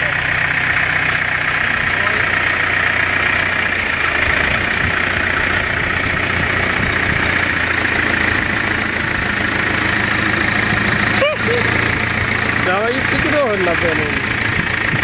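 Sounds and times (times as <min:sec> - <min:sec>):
tractor diesel engine idling: 0:00.0 - 0:15.0.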